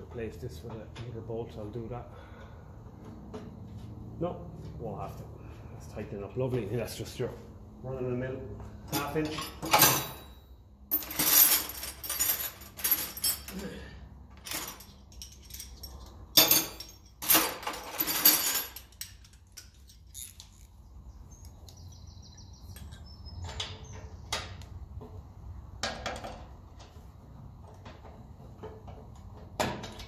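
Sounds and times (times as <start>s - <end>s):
metal hand tools clattering: 8.9s - 13.8s.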